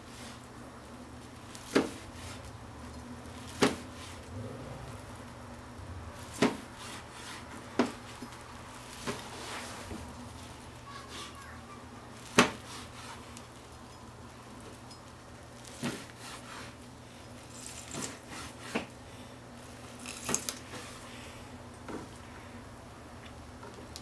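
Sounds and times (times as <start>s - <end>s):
knife slicing and scraping: 6.4s - 7.5s, 17.5s - 18.9s.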